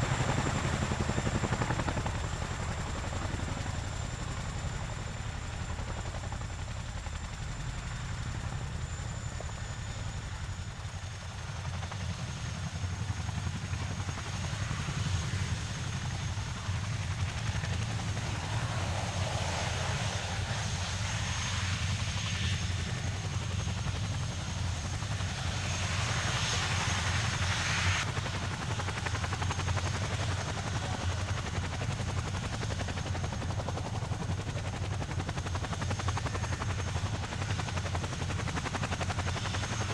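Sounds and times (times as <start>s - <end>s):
helicopter high whine: 0.0s - 39.9s
helicopter rotor rumble: 0.0s - 39.9s.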